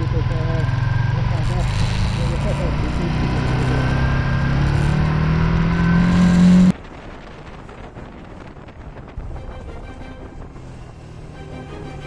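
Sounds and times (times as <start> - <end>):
motorcycle engine accelerating: 0.0 - 6.8
wind on microphone: 6.6 - 11.1.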